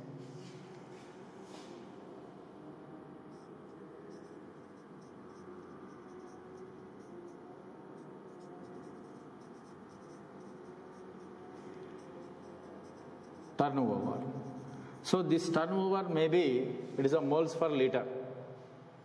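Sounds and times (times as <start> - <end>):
marker writing on whiteboard: 3.3 - 15.6.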